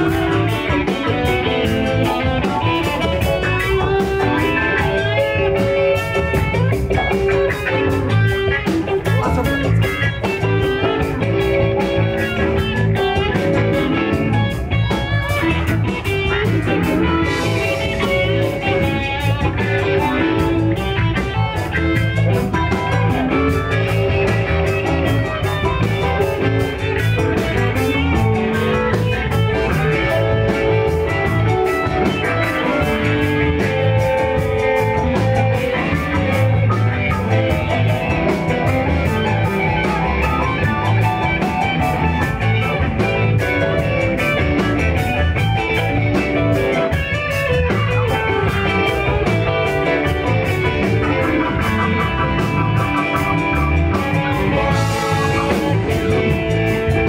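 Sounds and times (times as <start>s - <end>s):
bass: 0.0s - 57.0s
drumbeat: 0.0s - 57.0s
electric guitars: 0.0s - 57.0s.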